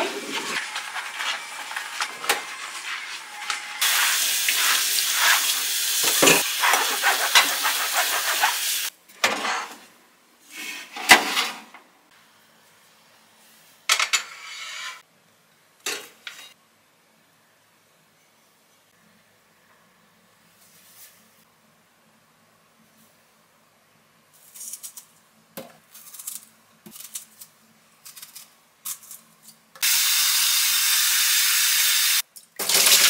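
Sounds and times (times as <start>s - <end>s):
running tap: 3.8s - 8.9s, 29.8s - 33.0s
dishes and cutlery clinking: 6.0s - 7.5s.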